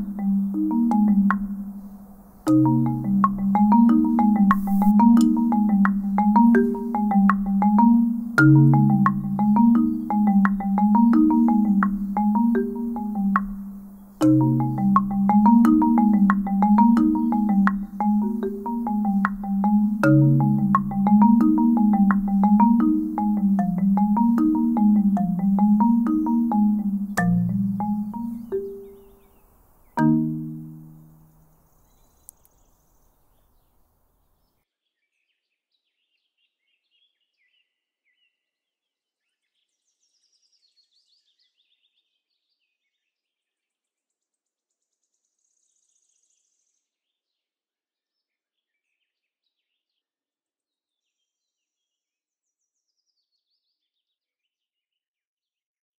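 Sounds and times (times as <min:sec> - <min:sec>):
faint bird chirps: 0:00.0 - 0:05.0
marimba chord ringing: 0:00.0 - 0:29.1, 0:30.0 - 0:31.2.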